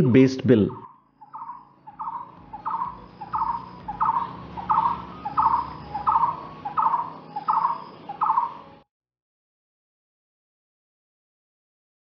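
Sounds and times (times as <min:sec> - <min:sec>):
barbet calling: 0:00.7 - 0:08.8.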